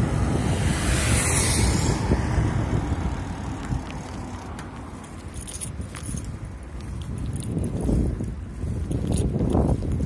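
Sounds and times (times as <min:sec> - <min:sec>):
bike road noise: 0:00.0 - 0:10.0
wind rumble on microphone: 0:00.0 - 0:10.0
light rattling clicks: 0:03.6 - 0:07.8, 0:08.8 - 0:10.0.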